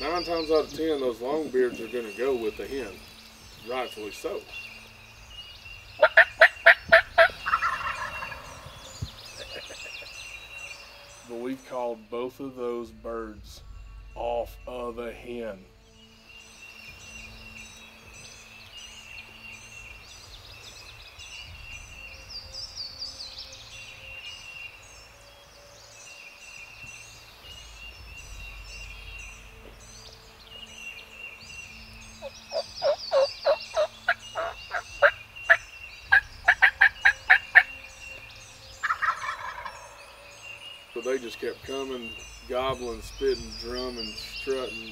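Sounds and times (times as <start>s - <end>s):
faint birdsong: 0.0s - 44.9s
turkeys gobbling: 6.0s - 10.4s, 32.2s - 37.8s, 38.8s - 40.1s.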